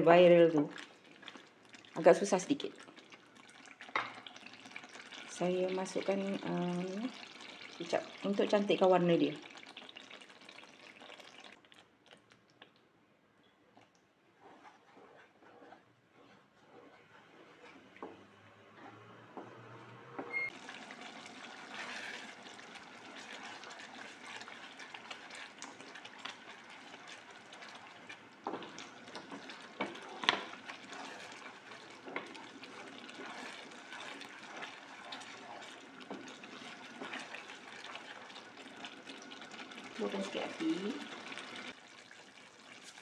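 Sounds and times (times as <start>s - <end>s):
sauce bubbling and sizzling: 0.0s - 12.9s, 13.7s - 43.0s
spatula scraping pan: 14.4s - 20.5s, 21.2s - 41.7s.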